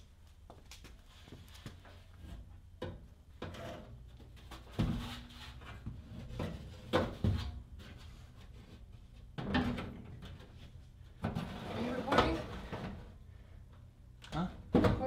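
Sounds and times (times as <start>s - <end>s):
sheet metal scraping and clunking: 11.2s - 13.1s.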